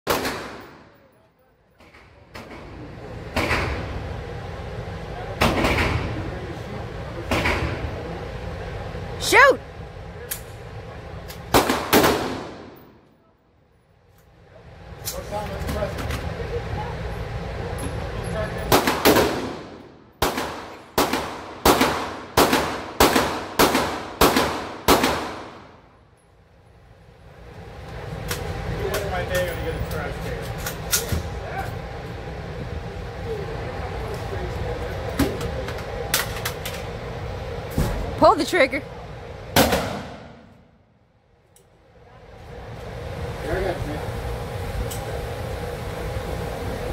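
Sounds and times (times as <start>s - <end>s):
gunshots echoing indoors: 0.1s - 1.1s, 11.5s - 12.9s, 18.7s - 25.8s, 39.6s - 40.6s.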